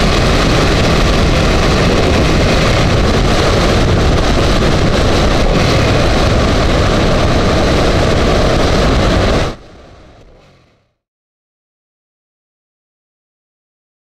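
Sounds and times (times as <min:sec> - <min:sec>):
wind rushing over microphone: 0:00.0 - 0:10.6
motorcycle engine: 0:00.0 - 0:11.0
road noise: 0:00.0 - 0:11.0.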